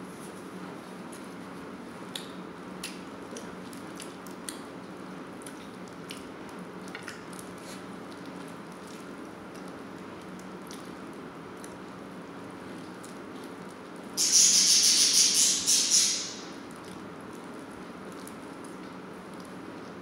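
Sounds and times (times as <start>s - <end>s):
wet chewing and lip smacks: 2.1s - 11.8s.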